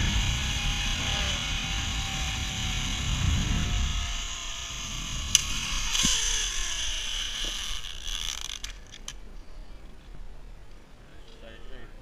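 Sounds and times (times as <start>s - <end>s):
wind on microphone: 0.0s - 8.1s
zipline pulleys whirring: 0.0s - 9.2s
sharp click: 5.3s - 6.3s.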